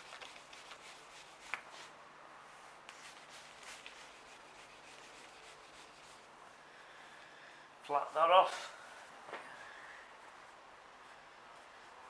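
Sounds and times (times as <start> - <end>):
wet sanding pad rubbing: 0.0 - 1.9, 2.9 - 6.3.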